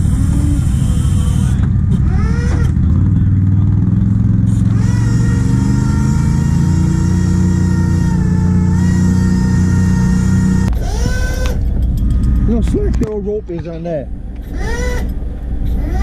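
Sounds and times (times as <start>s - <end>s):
engine-driven winch running: 4.5s - 13.0s, 14.4s - 16.0s.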